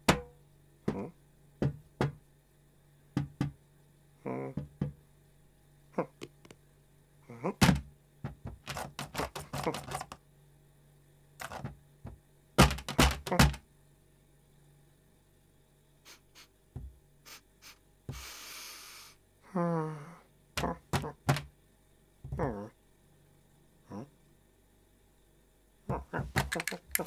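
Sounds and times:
scrabbling clicks: 26.4s - 27.0s.

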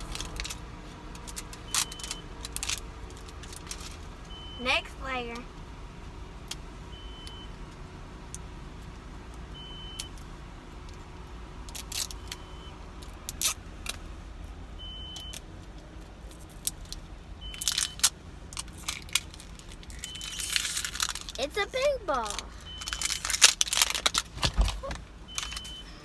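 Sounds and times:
plastic wrapping crinkling: 17.6s - 21.5s, 22.2s - 25.7s.

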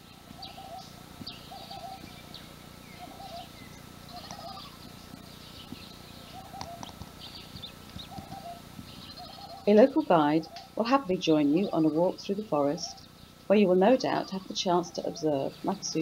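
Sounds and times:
short low bird calls: 0.0s - 9.8s
high bird chirps and twitters: 0.4s - 10.8s.

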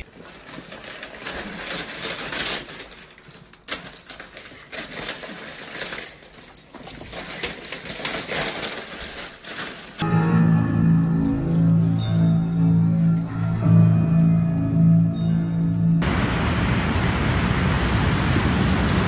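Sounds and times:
paper crinkling and tearing: 0.0s - 10.0s.

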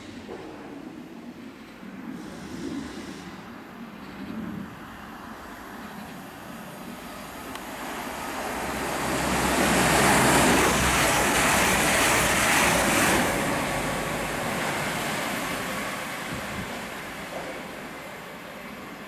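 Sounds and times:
train passing rushing noise: 4.4s - 19.0s.

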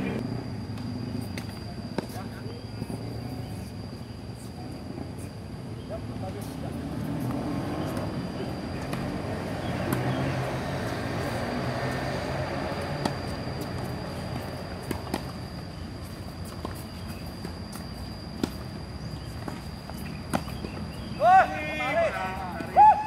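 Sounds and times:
steady high whine: 0.0s - 23.0s
tennis balls struck by rackets: 8.8s - 10.3s, 12.7s - 15.5s, 16.5s - 21.1s.

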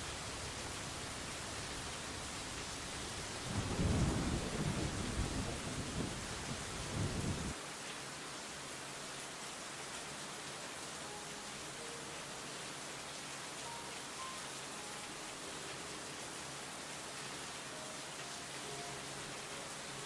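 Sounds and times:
rain hissing: 0.0s - 20.0s
low rumble of thunder: 3.4s - 7.6s.

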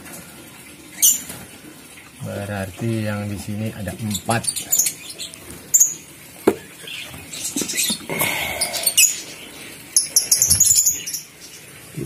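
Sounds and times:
small birds chirping: 3.6s - 12.0s.

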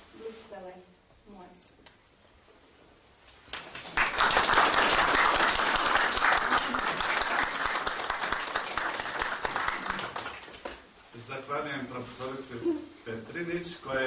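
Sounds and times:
audience applauding: 3.5s - 10.9s.

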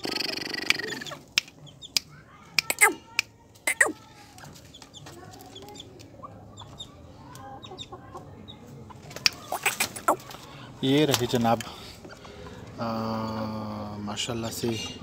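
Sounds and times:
chickens clucking: 0.0s - 3.0s, 3.6s - 15.0s
short sharp chicken calls: 3.7s - 4.0s, 9.4s - 10.2s.

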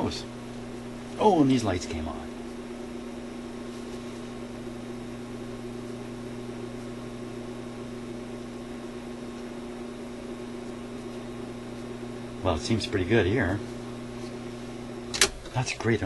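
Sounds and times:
turntable motor hum: 0.0s - 16.0s.

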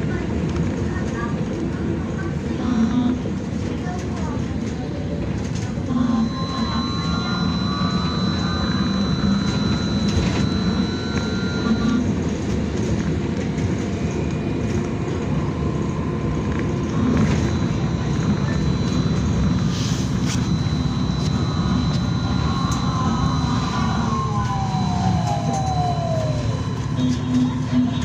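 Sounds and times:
high thin whine: 16.8s - 28.0s.

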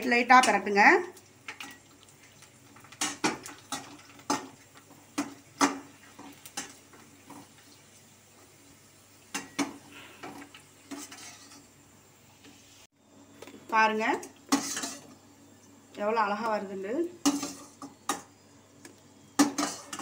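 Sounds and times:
oil sizzling: 0.0s - 20.0s
metal skimmer scraping steel pan: 10.9s - 11.7s, 14.5s - 15.1s.

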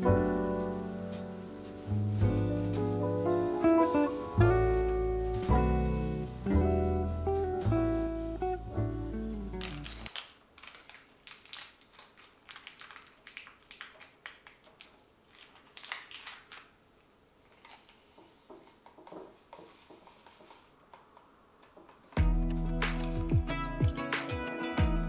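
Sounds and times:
paper-foil sachet crinkling: 9.1s - 20.7s.

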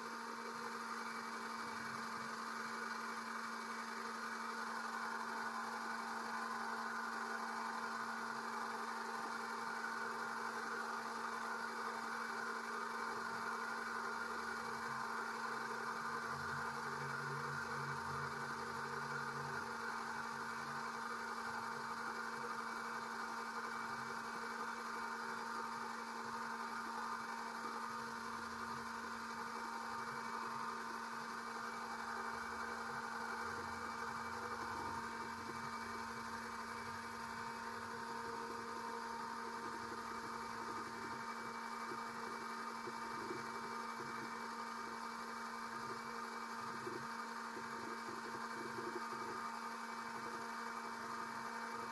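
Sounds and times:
electric pump motor humming: 0.0s - 51.9s.

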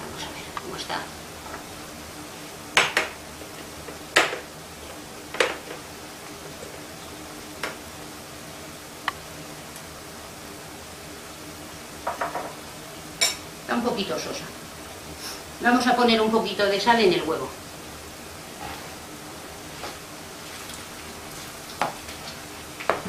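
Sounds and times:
potatoes frying in oil: 0.0s - 23.0s
spoon knocking on frying pan: 12.0s - 12.6s.

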